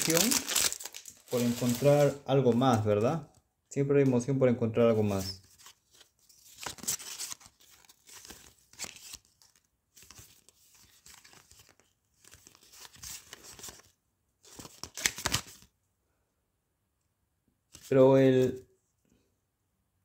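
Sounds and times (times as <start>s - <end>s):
card packet wrapper crinkling: 0.0s - 2.9s, 6.4s - 13.9s.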